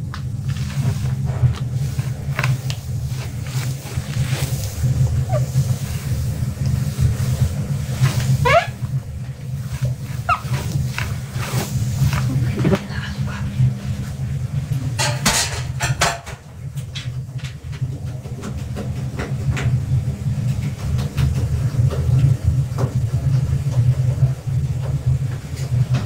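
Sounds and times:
steady low hum: 0.0 - 26.0
cloth wiping stove top: 0.3 - 14.7
knocks and clatter: 15.0 - 19.8.

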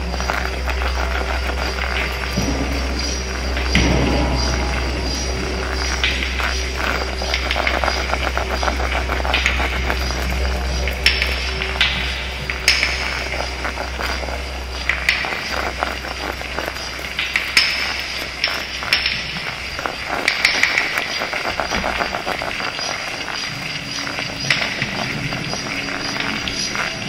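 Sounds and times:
crackle of clicks and hiss: 0.0 - 27.0
faint steady tones: 0.0 - 27.0
low hum: 0.0 - 27.0
sharp cracks: 0.0 - 27.0.

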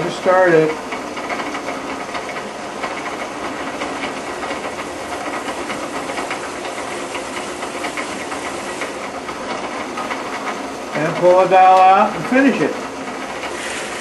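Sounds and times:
power drill boring into wood: 13.4 - 14.0.

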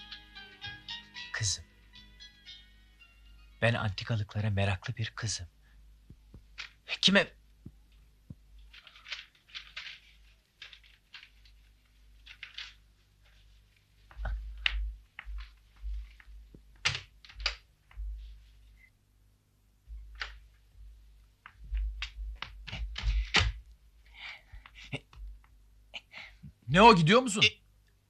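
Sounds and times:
paper rustling: 6.4 - 6.8, 8.3 - 18.7, 21.4 - 23.7.

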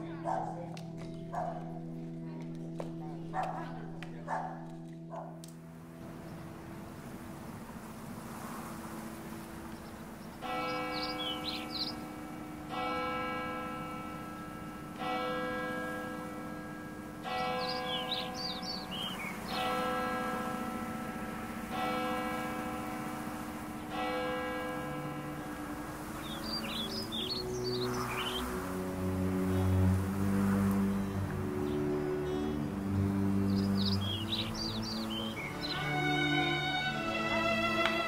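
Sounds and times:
birds chirping: 0.0 - 5.4, 6.0 - 38.0
church bell tolling: 10.4 - 37.0.

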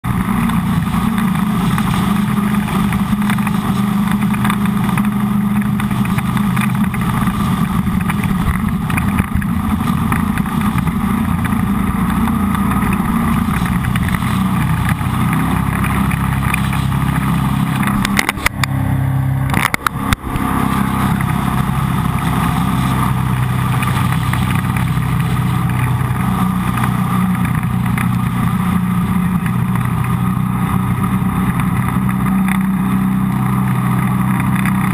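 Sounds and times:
jet boat engine running: 0.0 - 34.9
sharp clicks: 19.5 - 20.5.

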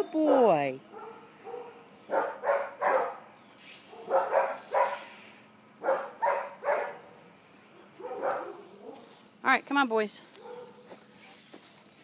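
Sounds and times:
dog barking: 0.9 - 3.3, 3.9 - 5.1, 5.8 - 7.2, 8.0 - 9.1, 10.4 - 10.9.

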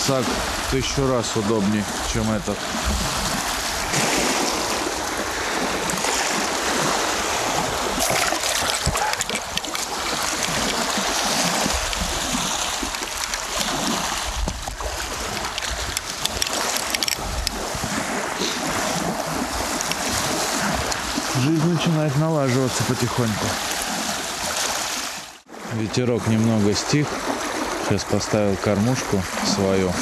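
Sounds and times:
choppy waves: 0.0 - 30.0
wind buffeting microphone: 1.8 - 21.5.

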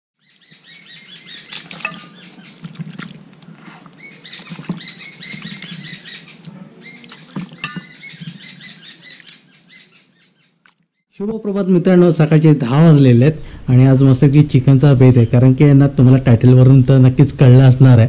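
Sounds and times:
small birds chirping: 0.2 - 11.0.

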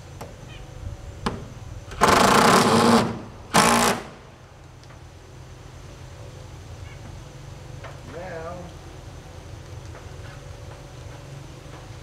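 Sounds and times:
cordless drill driving screw: 1.9 - 4.1.

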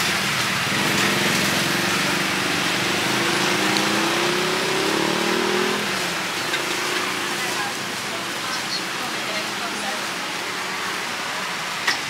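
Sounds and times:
street market noise: 0.0 - 12.0
small engine running: 0.6 - 5.6.

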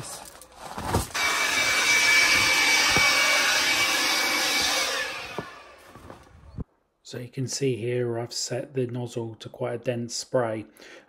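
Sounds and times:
handheld blower whining: 1.0 - 6.5.

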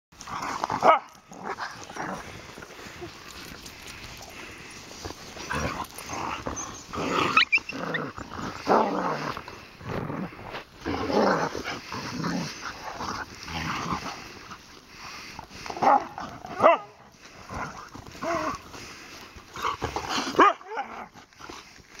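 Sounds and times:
dogs play-growling: 0.2 - 22.0
dog yelping: 6.6 - 8.2.

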